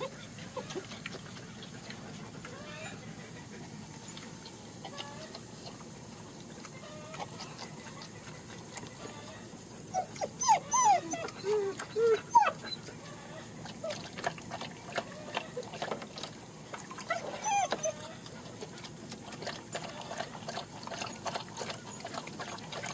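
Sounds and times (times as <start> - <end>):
puppies whimpering and yelping: 0.0 - 1.1, 2.4 - 3.8, 9.0 - 16.2, 16.8 - 18.7, 19.4 - 22.9
dog lapping water: 0.0 - 9.3, 11.0 - 22.9.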